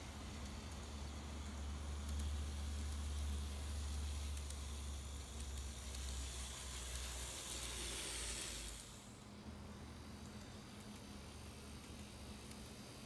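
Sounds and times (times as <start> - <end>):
model train motor and wheels whirring: 0.0 - 13.0.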